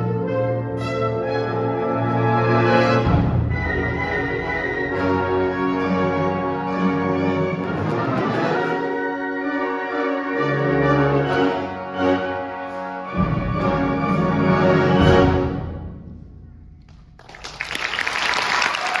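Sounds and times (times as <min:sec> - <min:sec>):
audience applause: 0:17.2 - 0:19.0.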